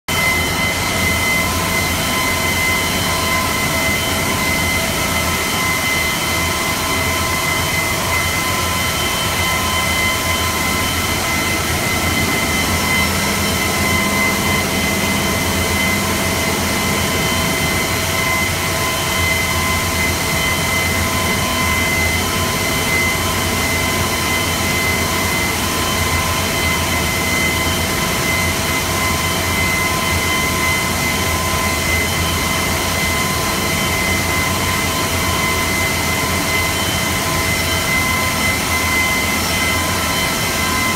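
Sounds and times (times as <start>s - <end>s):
high whining tones: 0.1s - 40.9s
stone-cutting machine running: 0.1s - 40.9s
low hum: 0.2s - 22.5s.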